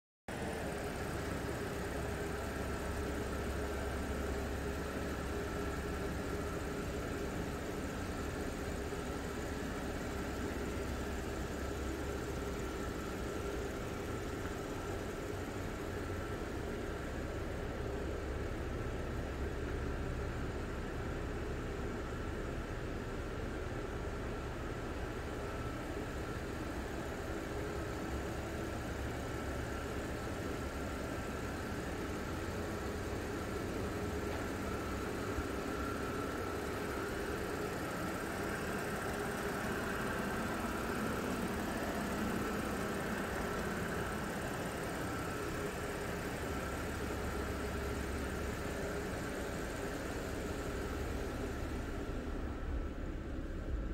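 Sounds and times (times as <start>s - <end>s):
car engine idling: 0.3s - 53.9s.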